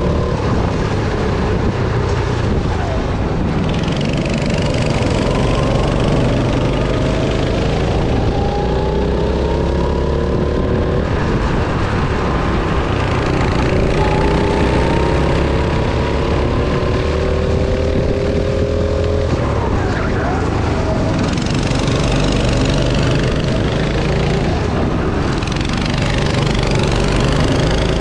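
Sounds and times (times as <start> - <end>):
go-kart engine accelerating: 0.0 - 28.0
low rumble: 0.0 - 28.0.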